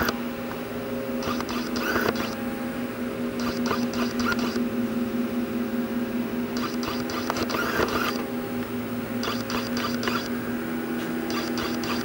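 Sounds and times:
shop machinery hum: 0:00.0 - 0:12.0.

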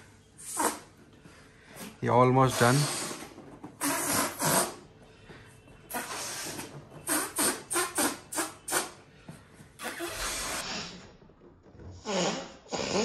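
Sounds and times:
person blowing breathy puffs: 0:00.4 - 0:01.0, 0:01.7 - 0:04.8, 0:05.9 - 0:09.1, 0:09.8 - 0:11.0, 0:12.0 - 0:13.0.

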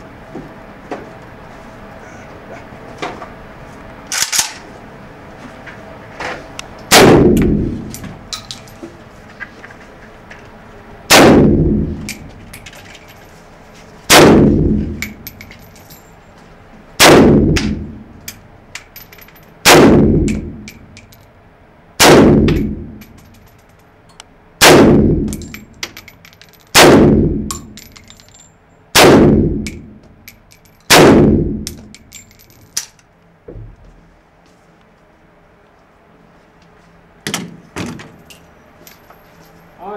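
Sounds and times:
rifle shots echoing indoors: 0:06.9 - 0:07.9, 0:11.1 - 0:12.3, 0:14.1 - 0:15.2, 0:17.0 - 0:18.1, 0:19.6 - 0:20.9, 0:22.0 - 0:23.2, 0:24.6 - 0:25.7, 0:26.7 - 0:28.1, 0:28.9 - 0:30.0, 0:30.9 - 0:32.3.

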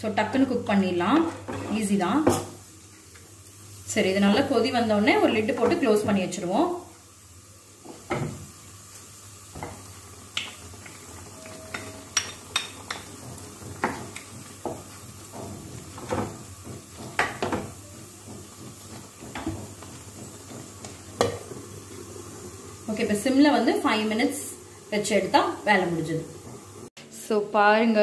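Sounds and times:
spatula scraping pan: 0:11.5 - 0:22.5.

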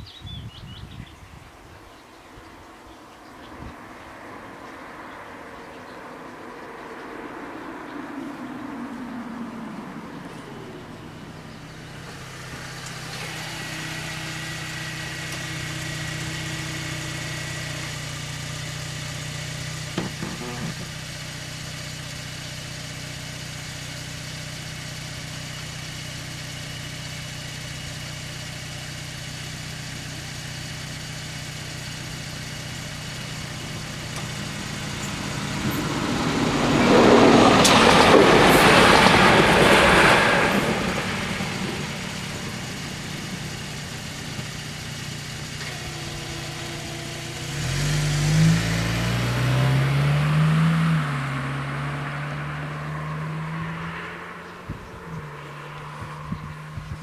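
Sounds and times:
low engine hum: 0:00.0 - 0:57.0
barrier drive whine: 0:07.6 - 0:26.7, 0:31.5 - 0:53.6
loud rushing noise: 0:34.7 - 0:44.4.

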